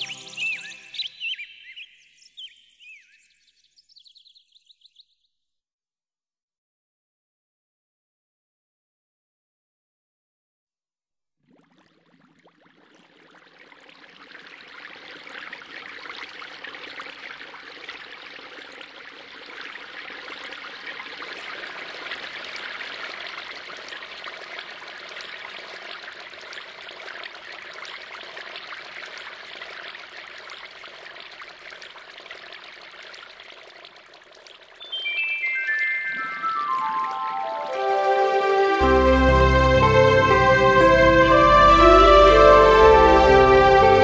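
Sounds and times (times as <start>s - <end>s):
running water: 11.5s - 44.0s.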